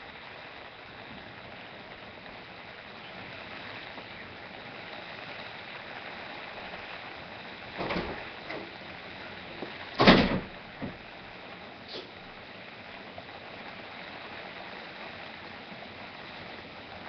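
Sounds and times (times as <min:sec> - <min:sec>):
steady rain hiss: 0:00.0 - 0:17.0
loud thump: 0:10.0 - 0:11.0.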